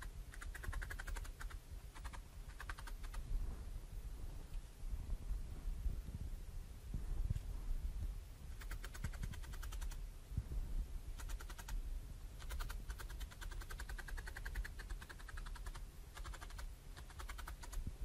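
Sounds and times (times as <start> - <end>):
felting needle ticking through wool: 0.0 - 3.2, 8.5 - 10.0, 11.2 - 11.8, 12.4 - 17.9
soft low bumps: 1.7 - 11.2.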